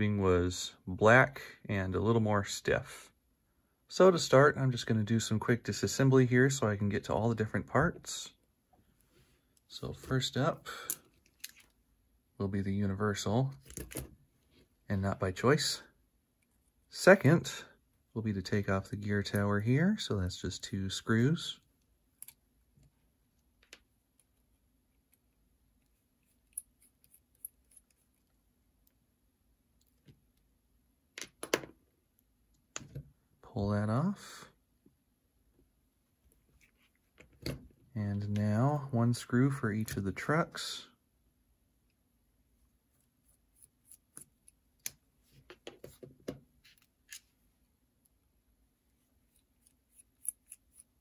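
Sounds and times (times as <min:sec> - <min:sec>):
small screwdriver and metal parts clicking: 0:25.8 - 0:29.0, 0:49.3 - 0:51.0.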